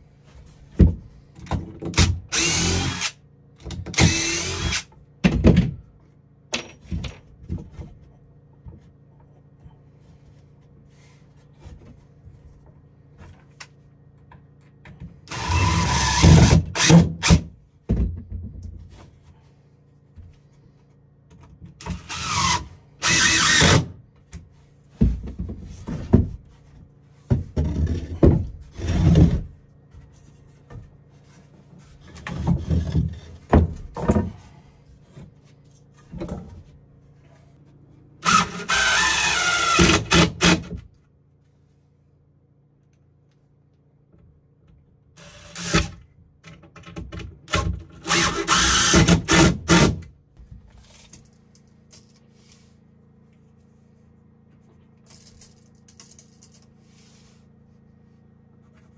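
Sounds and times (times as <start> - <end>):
power drill driving into wood: 2.0 - 3.2, 3.9 - 4.9, 15.3 - 17.4, 21.9 - 23.9, 38.2 - 40.6, 45.2 - 45.9, 48.0 - 50.0.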